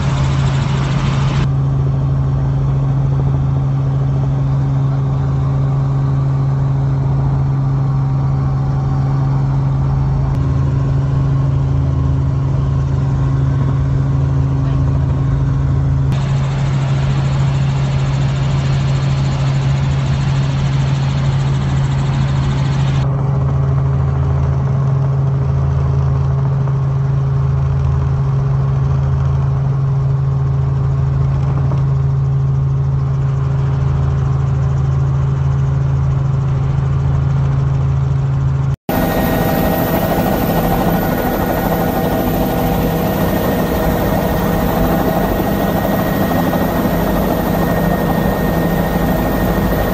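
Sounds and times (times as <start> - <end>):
helicopter drone from cabin: 0.0 - 49.9
higher steady tones: 38.9 - 49.9.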